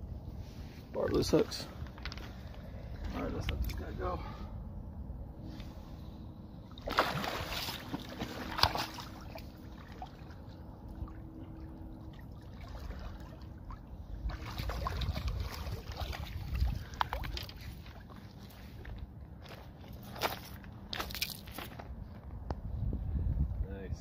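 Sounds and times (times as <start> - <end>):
water splashing and sloshing: 5.5 - 22.2.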